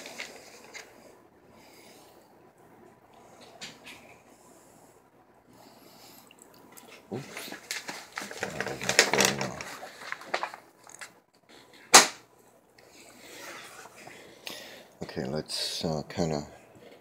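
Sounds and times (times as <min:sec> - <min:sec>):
paper and board rustling: 0:00.0 - 0:01.0, 0:07.0 - 0:11.2.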